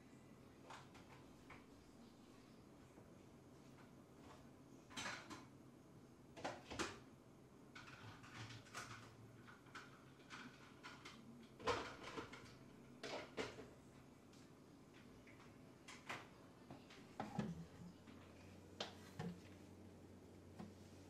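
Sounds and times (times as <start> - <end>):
household objects knocking and clicking: 15.9 - 18.0.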